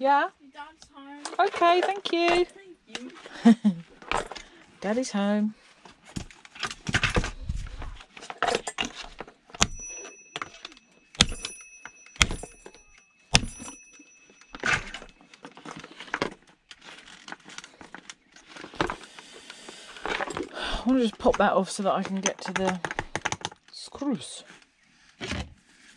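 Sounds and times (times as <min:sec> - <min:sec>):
metal parts clinking: 0:08.2 - 0:19.0
ringing metallic strikes: 0:11.2 - 0:14.6.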